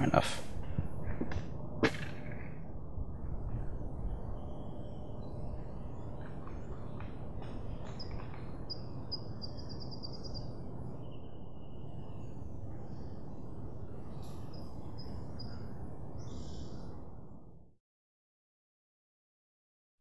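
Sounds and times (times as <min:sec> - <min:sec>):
low rush of background noise: 0:00.0 - 0:17.7
small birds chirping: 0:04.0 - 0:16.9.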